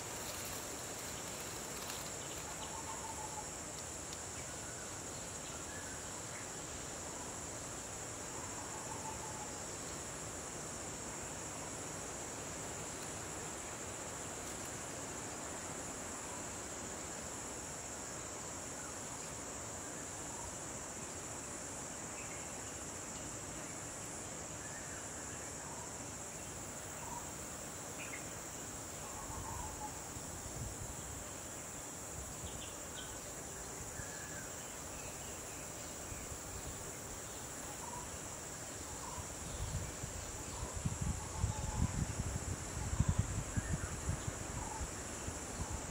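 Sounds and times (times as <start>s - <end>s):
insect chorus droning: 0.0s - 45.9s.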